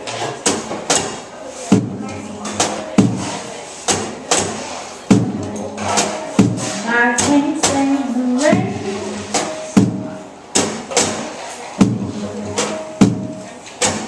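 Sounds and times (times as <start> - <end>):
drum kit hits: 0.4 - 14.0
woman singing: 5.1 - 9.7
live soul band playing: 7.8 - 10.0.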